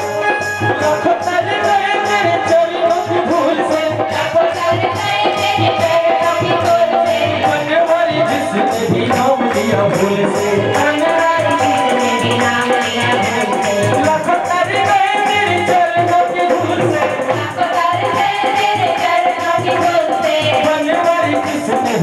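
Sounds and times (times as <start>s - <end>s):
hand drum beat: 0.0s - 22.0s
person singing over microphone: 0.0s - 22.0s
hand-clapping: 9.1s - 14.3s.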